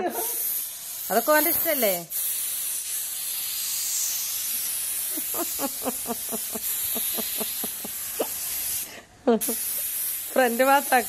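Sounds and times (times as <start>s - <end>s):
aerosol spray hissing: 0.0s - 11.0s.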